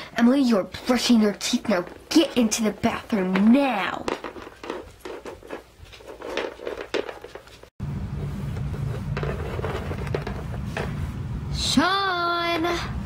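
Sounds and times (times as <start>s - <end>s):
steady low hum: 7.8s - 13.0s.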